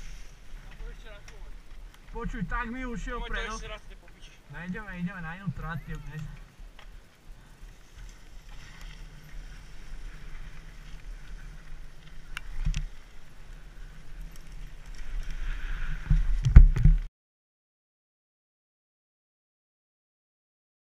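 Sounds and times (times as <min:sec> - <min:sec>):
bike tyres rumbling over leaves: 0:00.0 - 0:05.1, 0:06.4 - 0:17.1
wind noise: 0:00.0 - 0:17.1.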